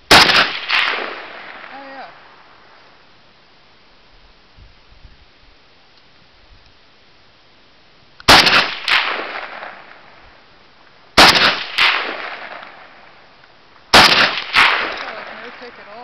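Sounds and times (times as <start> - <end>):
rifle shots: 0.1 - 2.3, 8.3 - 10.2, 11.2 - 13.1, 13.9 - 16.0.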